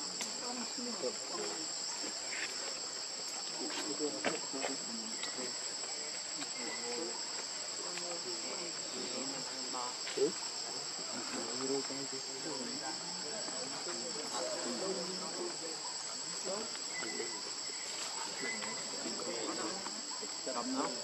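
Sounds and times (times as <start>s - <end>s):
insect chorus drone: 0.0s - 21.0s
faint chirping: 15.7s - 20.8s.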